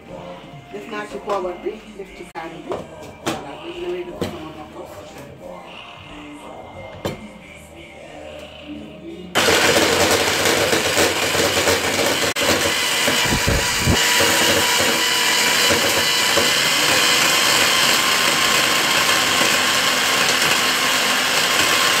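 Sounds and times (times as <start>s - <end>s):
electric blender motor running: 9.4s - 22.0s.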